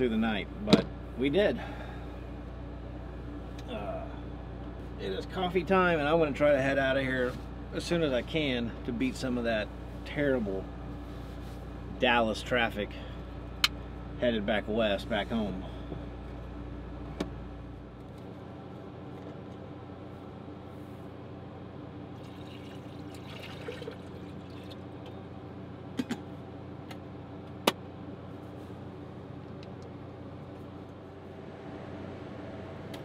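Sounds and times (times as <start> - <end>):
steady machine hum: 0.0 - 33.0
water pouring into glass carafe: 22.2 - 24.8.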